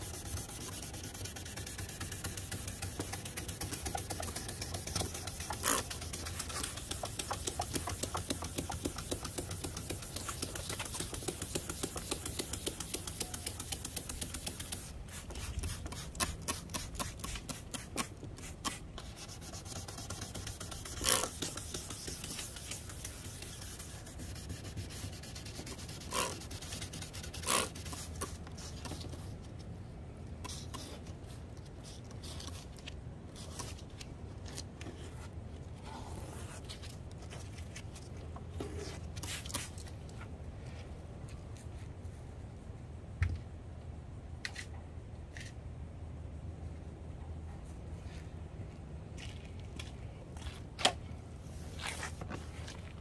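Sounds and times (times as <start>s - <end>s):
sandpaper rubbing on plastic: 0.0s - 29.1s.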